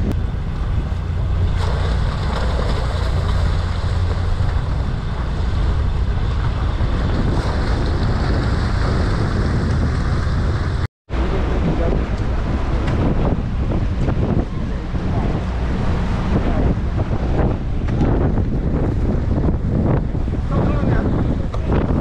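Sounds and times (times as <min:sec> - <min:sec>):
boat engine running: 0:00.0 - 0:22.0
wind on microphone: 0:00.0 - 0:22.0
fish splashing at surface: 0:01.5 - 0:04.7.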